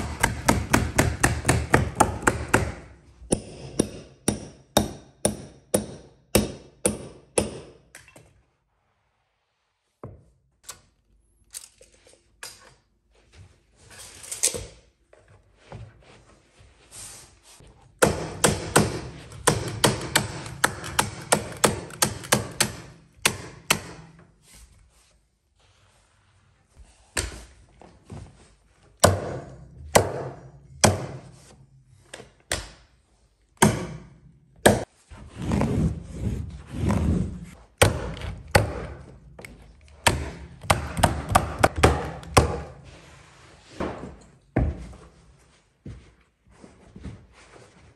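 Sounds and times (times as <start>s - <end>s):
tools knocking and tapping: 18.0s - 24.3s.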